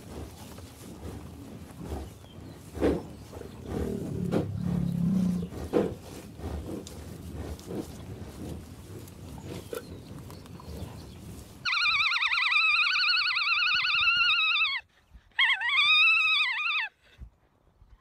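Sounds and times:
low rough caribou sounds: 0.0 - 18.0
alpaca calling: 11.6 - 17.0.

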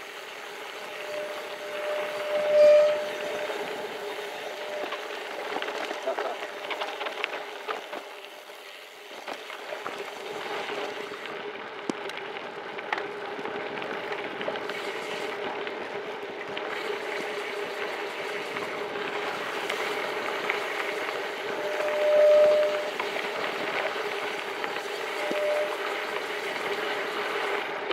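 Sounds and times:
steady buzz: 0.0 - 7.1
bike tyres crunching on gravel: 3.6 - 27.9.

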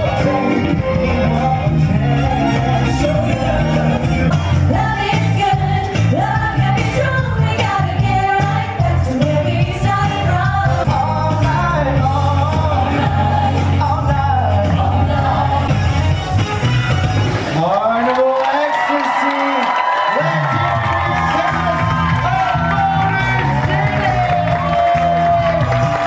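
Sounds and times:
people singing into microphones: 0.0 - 16.4
amplified backing music: 0.0 - 18.1, 20.4 - 26.0.

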